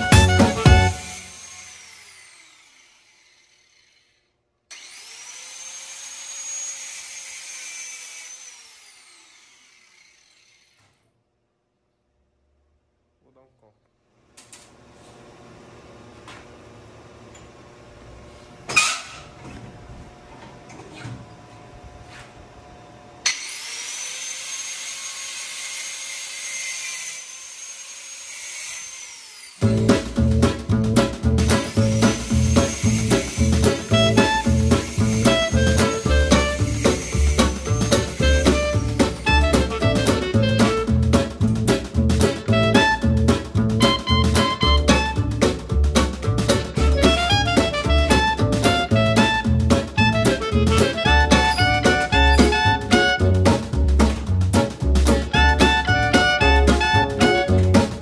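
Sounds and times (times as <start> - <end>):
grinding wheel hissing on steel: 0.0 - 4.2, 31.4 - 39.5
angle grinder whining: 0.0 - 11.0, 23.2 - 41.5, 42.2 - 53.6.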